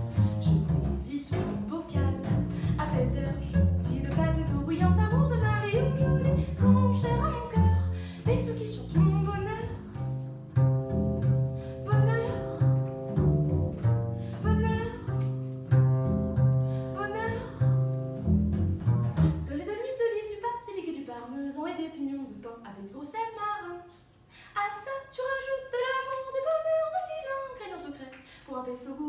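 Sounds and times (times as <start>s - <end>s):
plucked double bass: 0.0s - 19.8s
woman singing: 0.9s - 9.9s, 11.8s - 12.7s, 14.4s - 15.2s, 16.9s - 17.8s, 19.4s - 29.0s.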